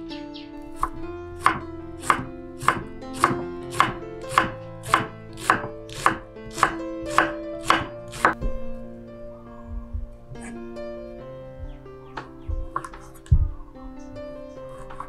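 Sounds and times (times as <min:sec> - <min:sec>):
knife chopping on wooden board: 0:00.8 - 0:08.4.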